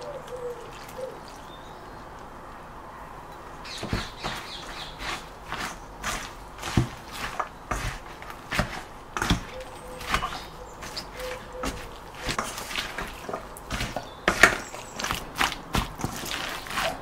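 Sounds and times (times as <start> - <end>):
spatula scraping a metal bowl: 3.8 - 17.0.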